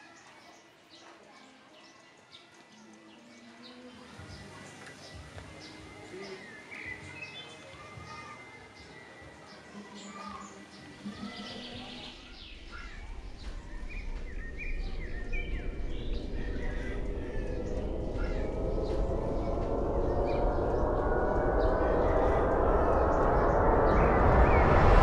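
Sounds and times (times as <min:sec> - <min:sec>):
birds chirping: 0:00.0 - 0:25.0
low rumbling riser: 0:12.2 - 0:25.0.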